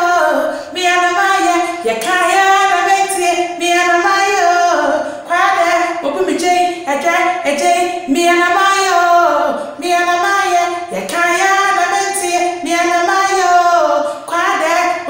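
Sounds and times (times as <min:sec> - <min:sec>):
woman singing: 0:00.0 - 0:15.0
woman breathing: 0:00.4 - 0:00.8, 0:05.0 - 0:05.3, 0:09.5 - 0:09.8, 0:14.0 - 0:14.3.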